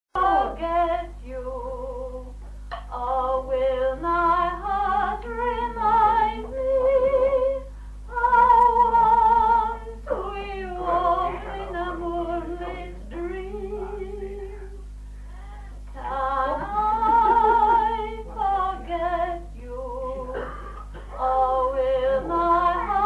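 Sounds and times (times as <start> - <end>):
low hum: 0.1 - 23.0
woman singing unaccompanied: 0.2 - 14.8, 15.9 - 20.4, 21.1 - 23.0.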